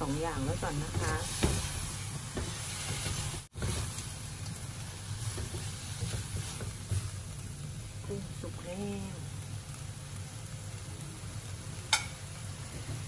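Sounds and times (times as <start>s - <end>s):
shrimp sizzling in frying pan: 0.0s - 13.0s.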